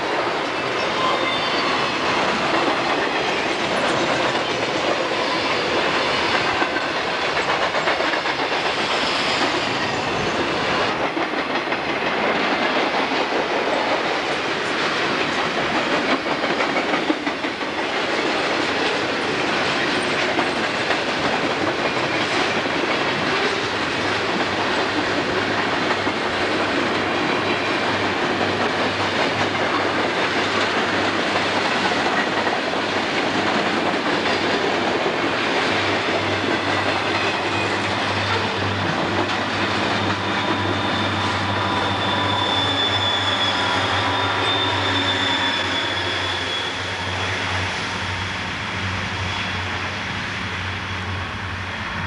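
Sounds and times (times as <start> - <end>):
wheels clacking over rail joints: 0.0 - 45.6
locomotive high whine: 23.0 - 52.0.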